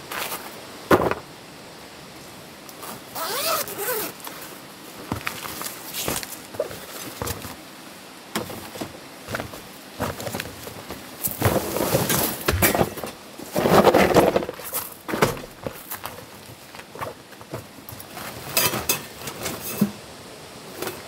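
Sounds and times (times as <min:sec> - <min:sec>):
rustling and handling noises: 0:02.7 - 0:20.0
zipper pulled open: 0:02.8 - 0:04.4
case thumping on gravel: 0:05.0 - 0:07.6, 0:08.4 - 0:18.4.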